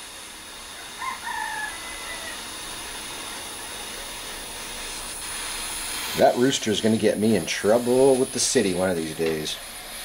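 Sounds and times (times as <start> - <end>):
gas torch flame hissing: 0.0 - 10.0
rooster crowing: 0.7 - 2.6.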